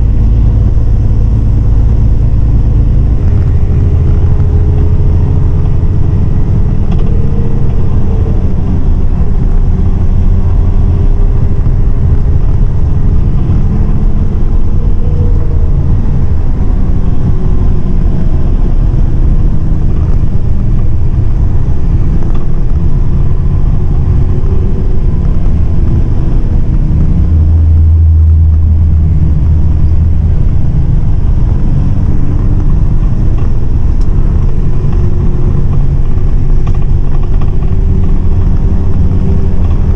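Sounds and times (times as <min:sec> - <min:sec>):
diesel bus engine drone: 0:00.0 - 0:39.9
road rumble: 0:00.0 - 0:39.9.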